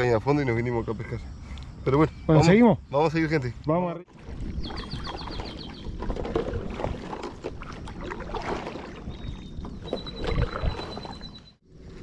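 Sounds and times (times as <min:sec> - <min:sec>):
kayak paddle splashing: 0:04.1 - 0:12.0
wind rumble on microphone: 0:04.1 - 0:12.0.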